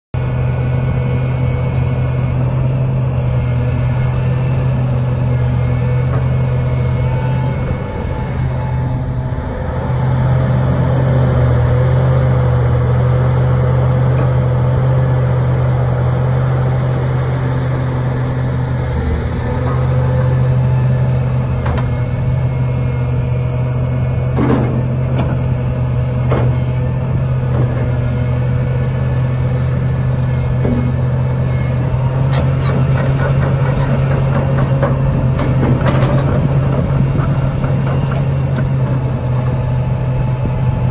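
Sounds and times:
excavator diesel engine under load: 0:00.2 - 0:40.9
hydraulic whine: 0:00.8 - 0:10.2, 0:16.2 - 0:40.9
metallic clanks and knocks: 0:24.4 - 0:25.4.

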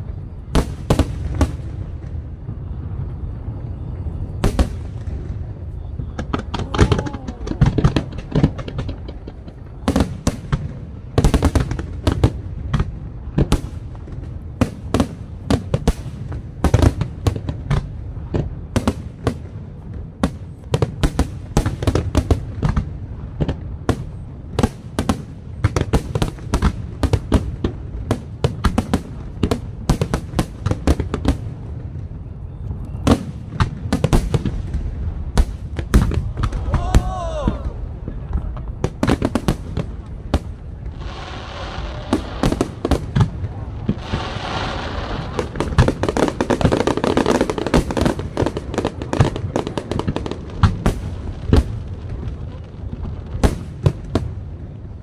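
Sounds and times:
fireworks bursting with sharp bangs: 0:00.0 - 0:55.0.

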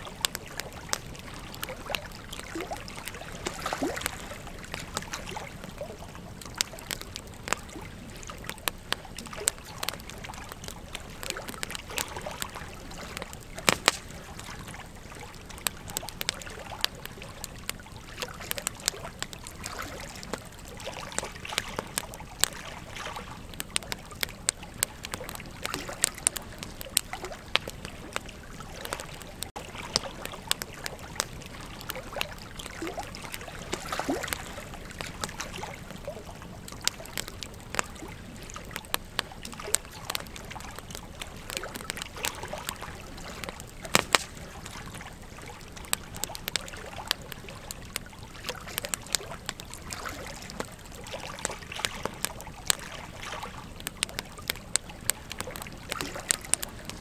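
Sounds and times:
burning wood snapping and popping: 0:00.0 - 0:57.0
rush of flames: 0:00.0 - 0:57.0.

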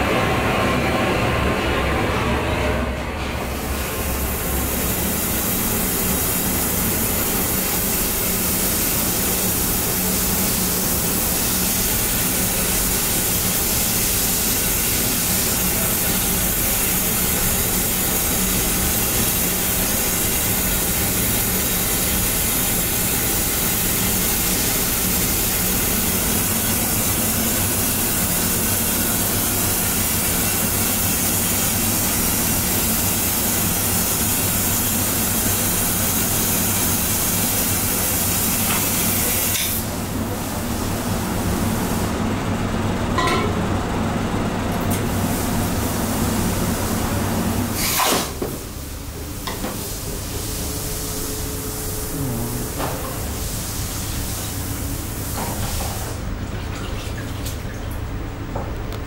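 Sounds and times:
gas torch flame hissing: 0:03.5 - 0:40.9.

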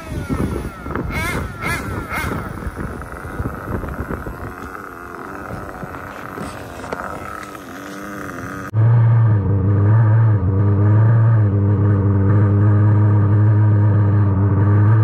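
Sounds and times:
small model engine revving: 0:00.0 - 0:08.7.

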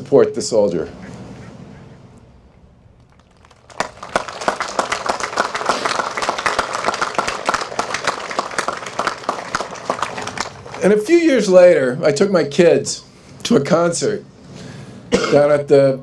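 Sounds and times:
audience applause: 0:03.1 - 0:11.1.

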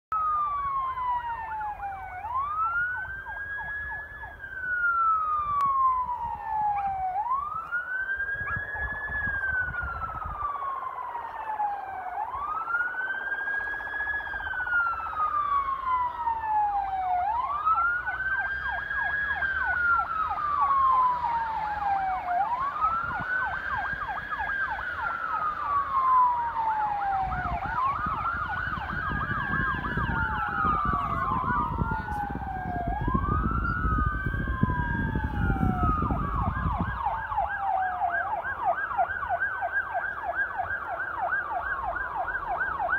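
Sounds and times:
fainter second siren: 0:00.1 - 0:42.9
siren wailing: 0:00.1 - 0:42.9.

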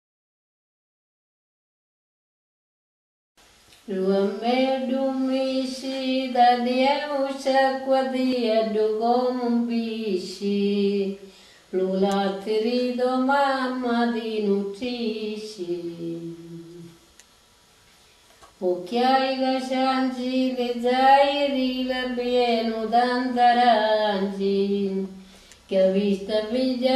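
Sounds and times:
woman singing unaccompanied: 0:03.8 - 0:17.0, 0:18.6 - 0:26.9.

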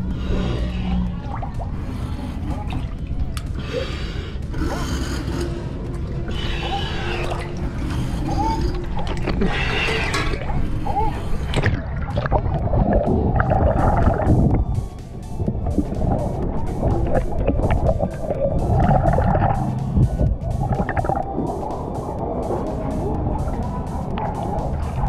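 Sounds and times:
regulator water gurgling and bubbling: 0:00.0 - 0:25.0.

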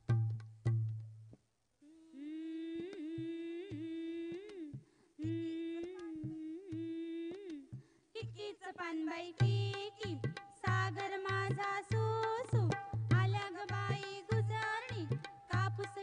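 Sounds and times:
folk music with drum: 0:00.0 - 0:01.2, 0:09.4 - 0:16.0.

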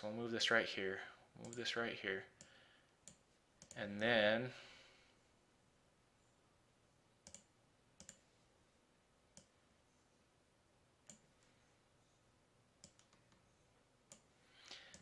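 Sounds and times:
computer mouse clicking: 0:02.4 - 0:03.8, 0:07.2 - 0:08.2, 0:12.8 - 0:13.4, 0:14.1 - 0:15.0.

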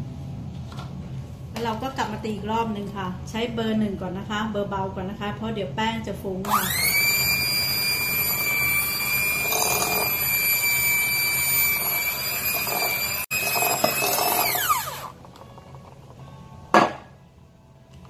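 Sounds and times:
electric hand mixer whine: 0:06.5 - 0:15.6.

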